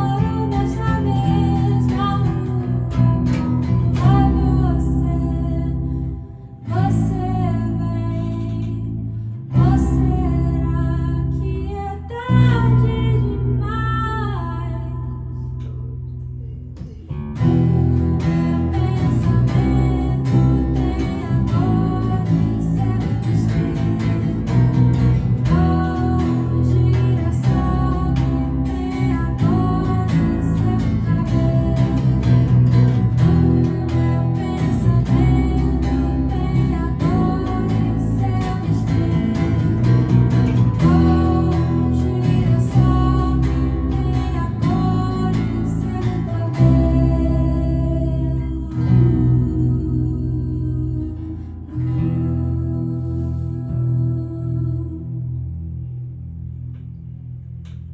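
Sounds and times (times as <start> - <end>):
woman singing: 0.0 - 55.5
acoustic guitar: 0.0 - 57.9
electric guitar: 0.0 - 57.9.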